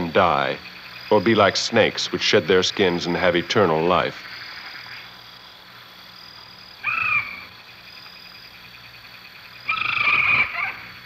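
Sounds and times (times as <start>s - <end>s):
insect chorus: 0.0s - 11.0s
hoarse animal calls: 9.7s - 11.0s.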